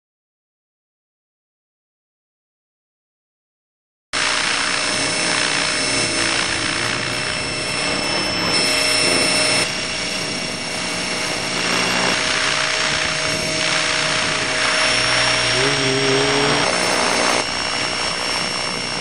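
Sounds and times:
rotor rushing hiss: 4.2 - 17.5
helicopter motor whine: 4.2 - 19.0.

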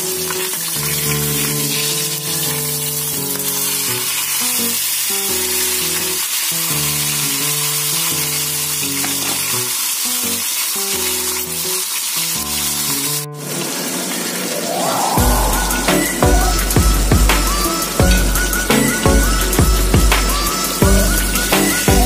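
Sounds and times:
fish sizzling in hot oil: 0.0 - 15.0, 15.7 - 21.9
background music with low notes: 15.2 - 22.0.

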